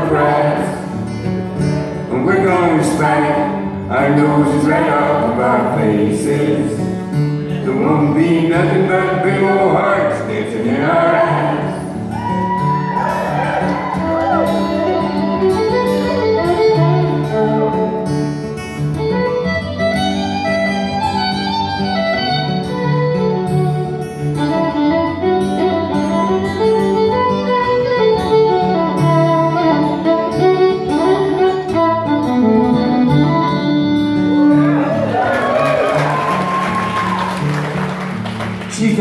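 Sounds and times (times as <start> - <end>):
acoustic guitar: 0.0 - 39.0
fiddle solo: 12.0 - 37.8.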